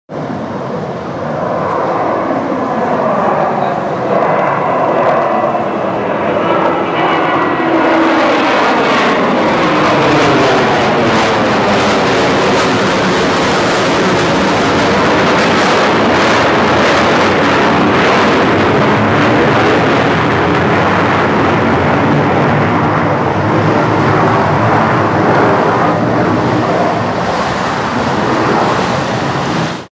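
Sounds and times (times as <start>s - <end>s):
jet airliner passing overhead: 0.1s - 29.9s.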